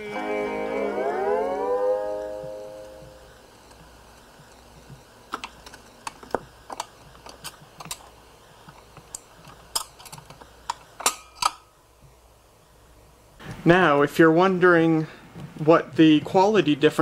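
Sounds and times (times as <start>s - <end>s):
record changer mechanical clicks: 2.8s - 11.6s.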